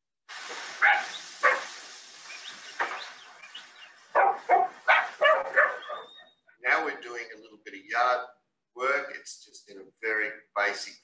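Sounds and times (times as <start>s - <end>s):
puppies barking: 0.8s - 1.8s, 4.1s - 6.3s.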